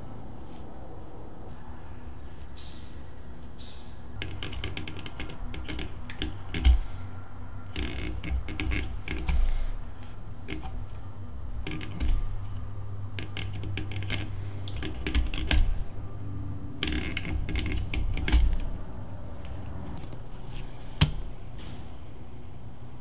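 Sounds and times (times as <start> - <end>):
low steady hum: 0.0 - 23.0
thread rustling and ticking clicks: 4.2 - 21.4.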